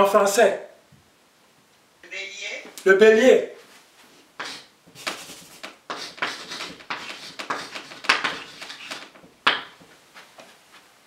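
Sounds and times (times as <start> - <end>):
chalk scratching on blackboard: 4.4 - 9.2
chalk tap on blackboard: 4.4 - 9.8.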